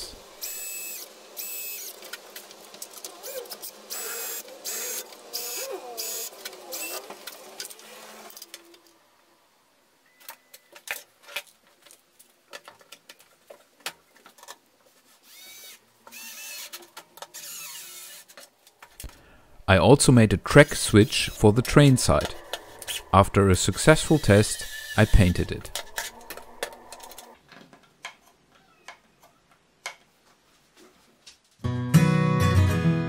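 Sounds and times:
cordless drill motor whining: 0:00.4 - 0:02.0, 0:03.2 - 0:08.4, 0:15.2 - 0:18.3, 0:24.0 - 0:27.3.

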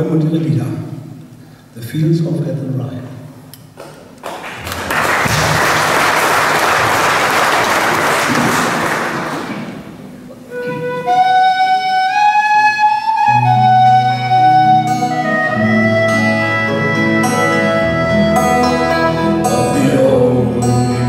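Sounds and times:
audience applauding: 0:03.8 - 0:10.0
low accompanying notes: 0:09.5 - 0:21.0
whistle melody: 0:10.6 - 0:19.4.

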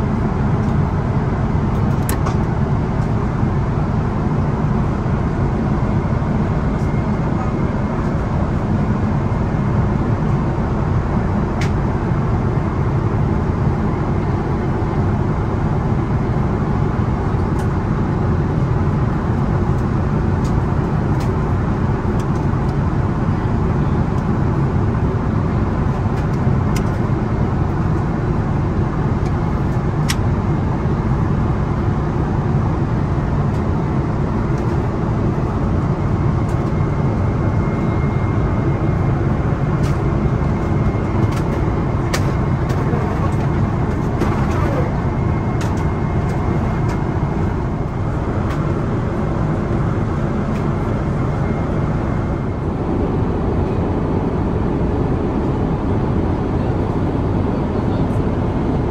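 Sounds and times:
airplane cabin airflow and engines: 0:00.0 - 0:58.9.

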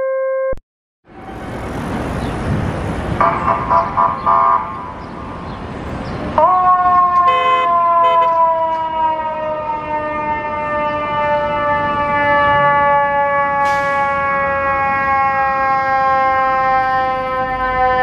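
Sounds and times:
fire engine siren: 0:00.0 - 0:02.0, 0:03.2 - 0:05.4, 0:06.3 - 0:18.0
street traffic: 0:01.0 - 0:18.0
pulsing horn blasts: 0:07.1 - 0:08.6
air horn blasts: 0:07.2 - 0:08.4.

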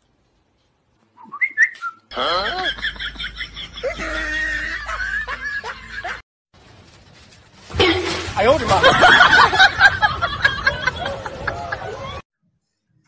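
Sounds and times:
warbling bird-like whistling: 0:01.2 - 0:02.0.

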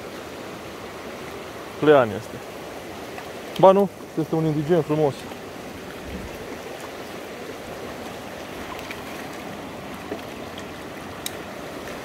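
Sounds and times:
river rushing over stones: 0:00.0 - 0:12.0.

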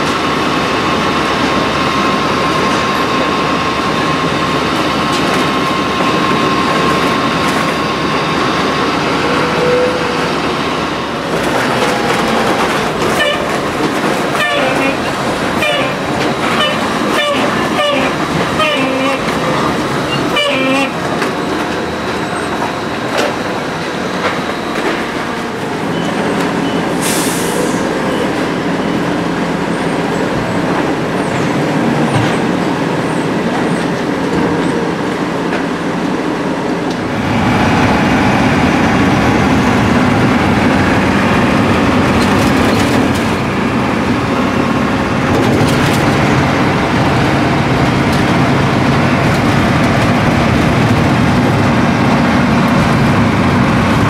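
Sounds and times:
engine and road drone in cab: 0:36.3 - 0:54.0.

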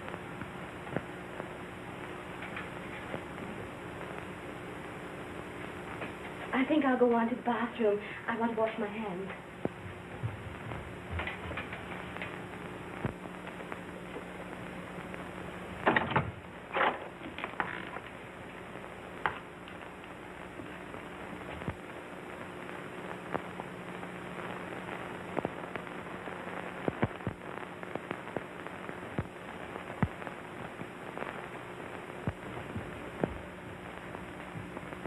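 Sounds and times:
clicks and pops: 0:00.0 - 0:04.3, 0:11.2 - 0:14.3, 0:15.0 - 0:18.2, 0:25.3 - 0:25.9, 0:26.7 - 0:31.4, 0:32.2 - 0:35.0
film soundtrack hiss and hum: 0:00.0 - 0:35.0.

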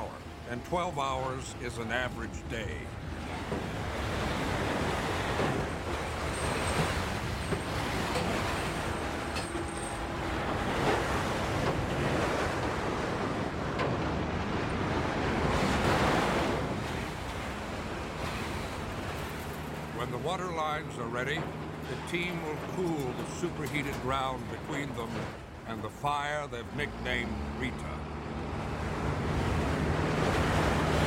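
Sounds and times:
bulldozer engine running: 0:02.2 - 0:14.9, 0:26.5 - 0:31.0.

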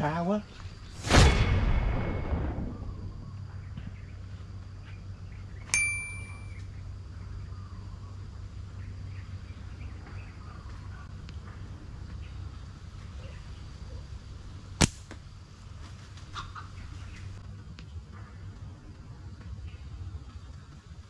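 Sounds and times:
low hum: 0:00.7 - 0:15.8
faint chirps: 0:02.1 - 0:14.3
metallic ding: 0:05.7 - 0:06.6.

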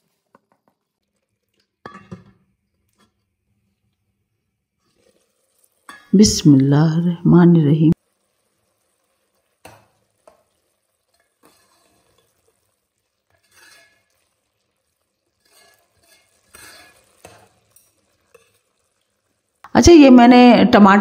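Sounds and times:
metal ladle scraping a pot: 0:11.1 - 0:12.6, 0:13.3 - 0:14.5, 0:15.3 - 0:18.8.

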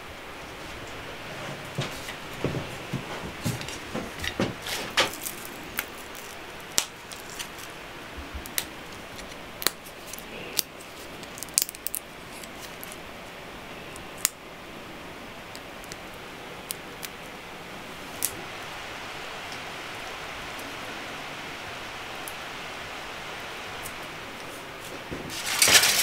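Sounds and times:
seeds cracking: 0:04.6 - 0:07.8, 0:08.4 - 0:13.1, 0:13.9 - 0:14.4, 0:18.1 - 0:18.4, 0:24.8 - 0:26.0.

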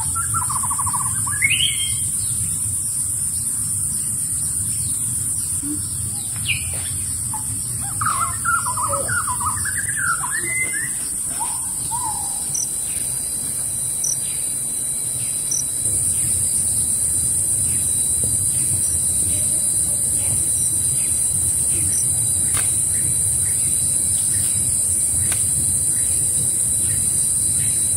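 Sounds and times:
bird chirping: 0:00.0 - 0:17.0
high-pitched hiss: 0:00.0 - 0:27.9.

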